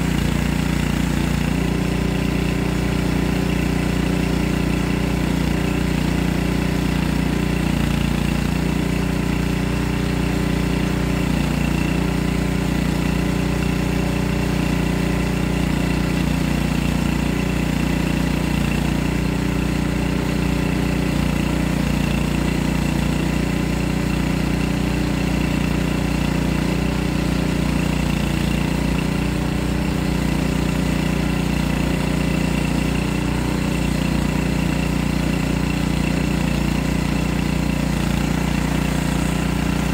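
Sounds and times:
bandsaw mill running: 0.0s - 39.9s.

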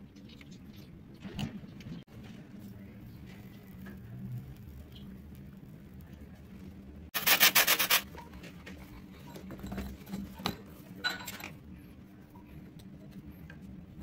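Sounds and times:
gritty rasp: 7.2s - 8.0s
metal tools scraping sand: 7.2s - 8.1s.

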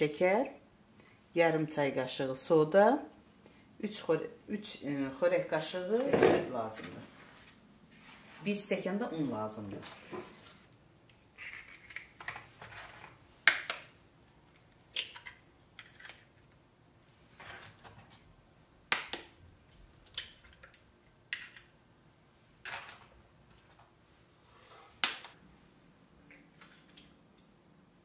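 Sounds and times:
eggs cracking against bowl rim: 13.5s - 16.5s.

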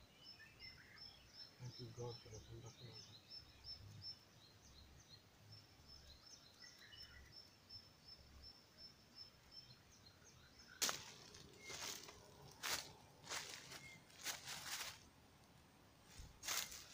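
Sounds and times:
faint high chirp: 6.0s - 14.9s
loud crunch: 10.8s - 15.0s.

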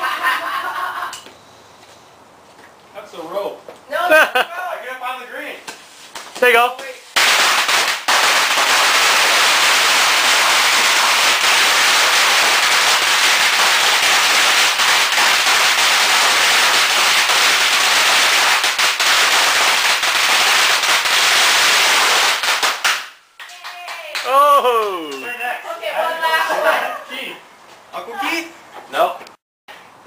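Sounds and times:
firecrackers crackling: 5.6s - 24.4s.

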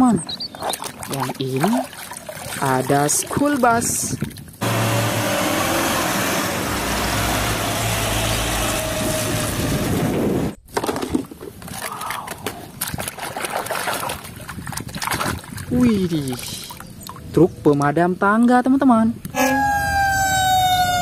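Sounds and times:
water splashing in plastic basin: 0.5s - 4.5s, 10.8s - 17.2s
bus engine drone: 4.6s - 10.6s, 19.4s - 21.0s.

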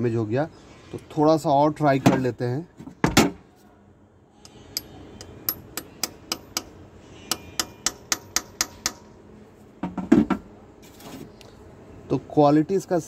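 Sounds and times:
steel bar striking metal: 4.5s - 9.1s.

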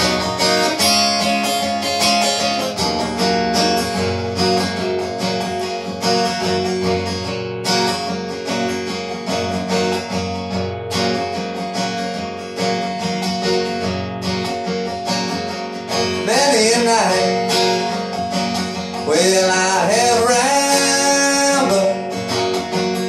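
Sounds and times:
acoustic guitar strumming: 0.0s - 23.0s
person singing with vibrato: 16.1s - 18.0s, 18.9s - 22.4s.

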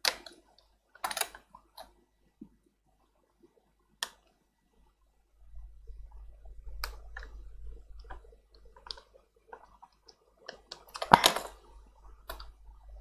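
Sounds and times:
light plastic clicks: 6.2s - 12.7s.

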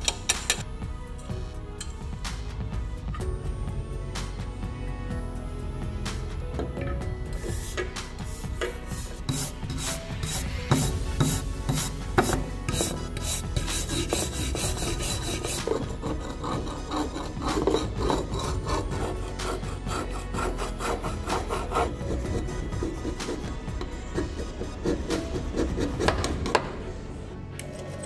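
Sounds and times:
metal scraper scraping metal: 7.3s - 26.7s
wire brush scrubbing metal: 7.4s - 26.4s.

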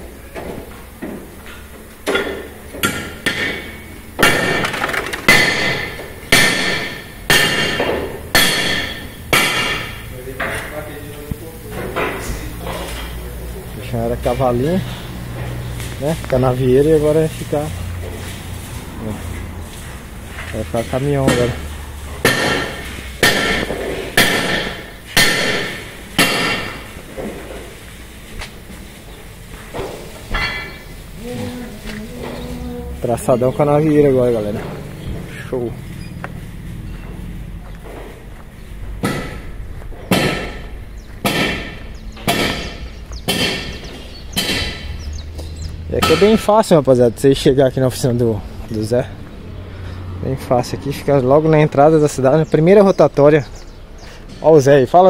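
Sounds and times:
hammer striking metal: 2.1s - 4.7s, 5.3s - 10.6s, 22.2s - 26.9s, 39.0s - 44.9s, 46.0s - 46.5s
hammer ringing on metal: 5.3s - 10.0s, 22.2s - 26.8s.

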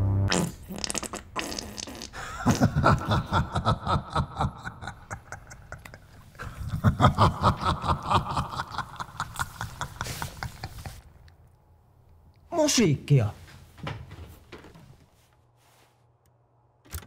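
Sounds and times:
man laughing: 2.2s - 11.0s.

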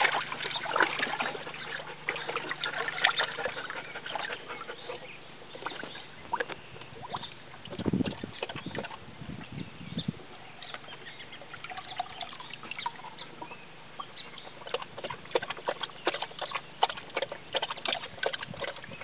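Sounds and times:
water splashing in plastic tub: 0.0s - 4.4s, 5.5s - 9.1s, 14.6s - 19.0s.

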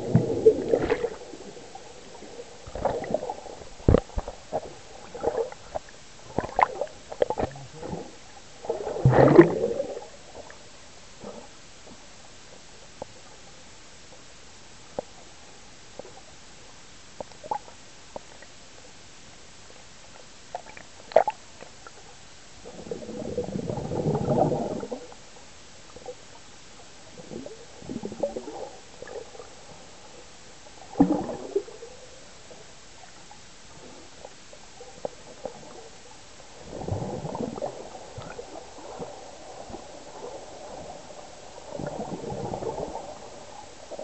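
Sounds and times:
muffled underwater gurgling: 0.0s - 12.0s, 22.6s - 25.2s, 36.6s - 44.0s.

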